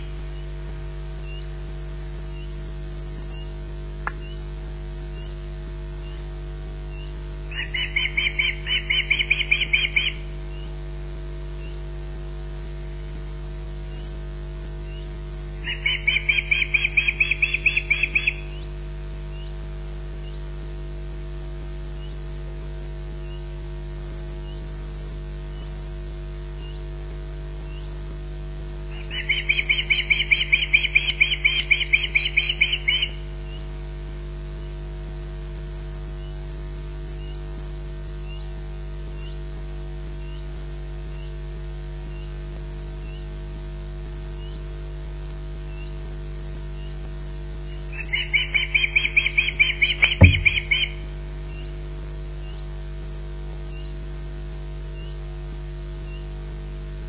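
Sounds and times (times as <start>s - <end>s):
steady electrical hum: 0.0s - 57.0s
osprey warning chirps: 6.9s - 10.3s, 15.6s - 18.6s, 28.9s - 33.2s, 47.9s - 51.6s
bird alarm calls: 7.5s - 10.3s, 15.6s - 18.6s, 28.9s - 33.2s, 47.9s - 51.1s.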